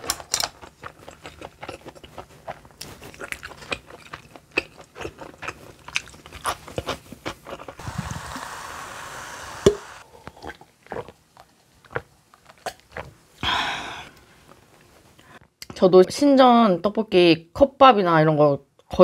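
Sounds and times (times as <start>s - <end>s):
chewing with clicks: 0.0s - 7.8s.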